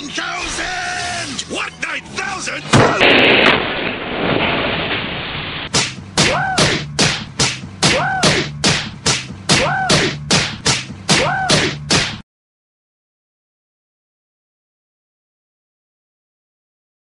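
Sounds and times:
explosion rumble: 0:02.7 - 0:05.7
cartoon face slaps: 0:05.7 - 0:12.2.

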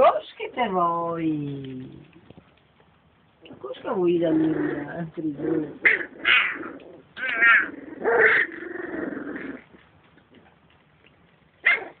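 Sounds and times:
puppies whimpering: 0:05.6 - 0:09.6.

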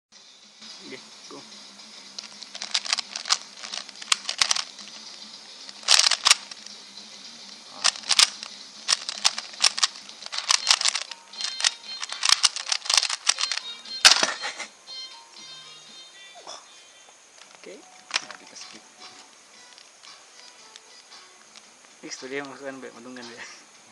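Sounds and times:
speed cube plastic clicking: 0:02.2 - 0:05.1, 0:05.7 - 0:06.7, 0:07.7 - 0:14.4, 0:17.4 - 0:18.4.

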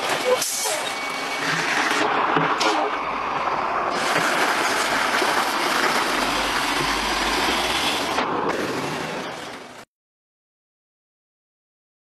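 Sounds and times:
heavy truck driving past: 0:02.9 - 0:09.9.

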